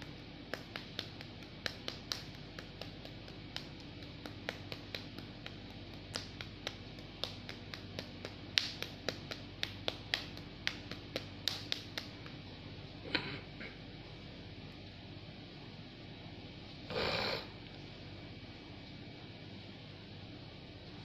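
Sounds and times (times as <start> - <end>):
palms patting together: 0.0 - 12.5.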